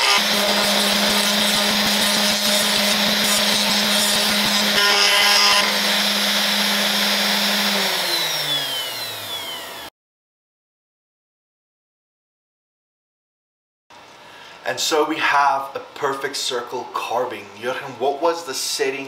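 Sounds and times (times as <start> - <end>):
gritty cutting noise: 0.0 - 9.9
router spindle whine: 0.0 - 9.9.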